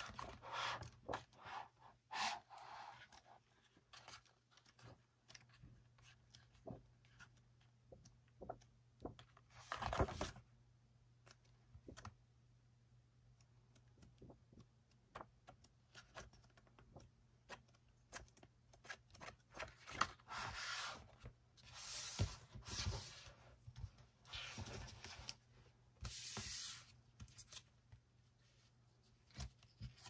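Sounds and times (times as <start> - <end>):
paper pages flipping: 2.3 - 10.4, 17.5 - 25.4
paper and cardboard rustling: 8.4 - 10.4.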